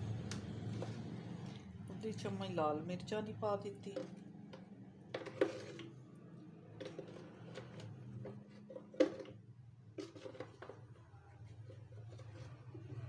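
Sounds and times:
kitchen items clicking and tapping: 3.8 - 6.0, 6.7 - 13.0.

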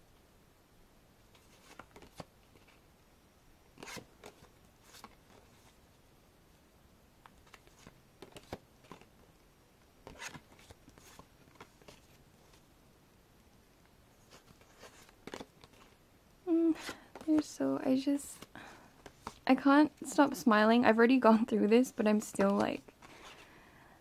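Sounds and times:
postcards scraping and clicking: 3.8 - 5.7, 10.0 - 12.2, 14.2 - 16.0, 18.4 - 19.4.

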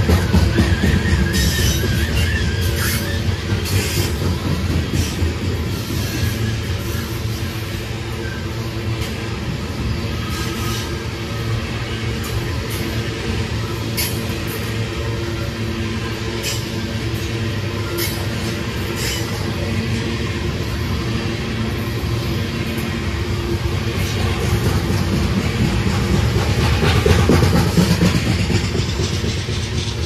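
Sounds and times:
locomotive engine drone: 0.0 - 30.0
wheels clicking over rail joints: 24.0 - 30.0.

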